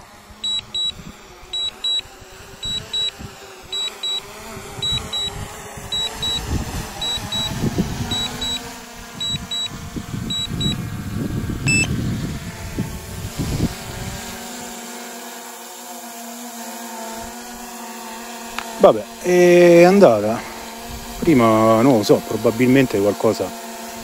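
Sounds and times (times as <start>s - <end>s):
drone propeller hum: 0.0s - 14.2s
short beep: 0.4s - 0.9s, 1.6s - 2.0s, 3.8s - 4.2s, 8.1s - 8.6s, 11.7s - 11.9s
double warning beeps: 0.4s - 1.0s, 1.6s - 2.0s, 2.6s - 3.1s, 3.8s - 4.2s, 4.8s - 5.3s, 6.0s - 8.6s, 9.2s - 9.7s, 10.3s - 10.8s, 11.7s - 11.9s.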